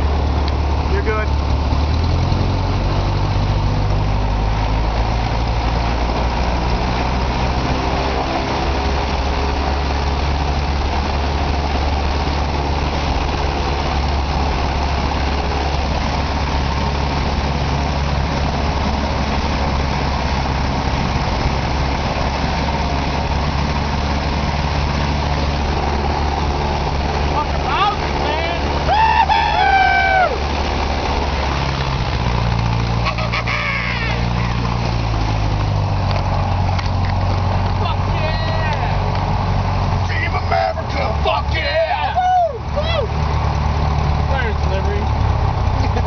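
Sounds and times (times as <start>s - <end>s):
aircraft engine and propeller: 0.0s - 46.0s.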